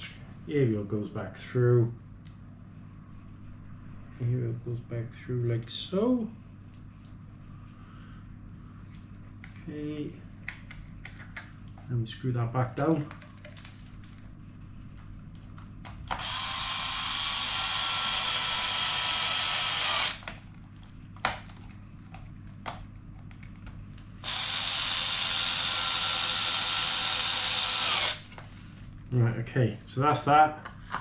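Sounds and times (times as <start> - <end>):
electric screwdriver whine: 16.1 - 20.3, 24.2 - 28.3.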